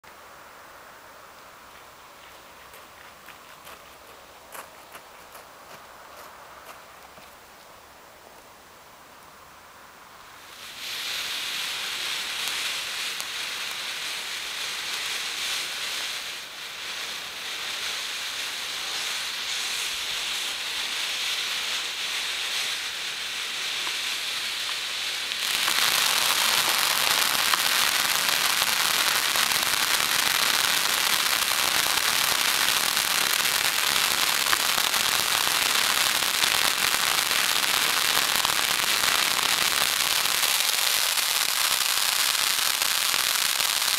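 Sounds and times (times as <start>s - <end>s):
ground fountain firework hissing: 10.1s - 43.9s.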